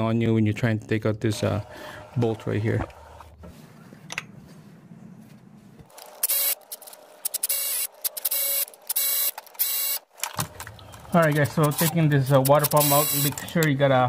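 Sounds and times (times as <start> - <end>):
electric ratchet running: 6.2 - 10.0, 11.6 - 13.4.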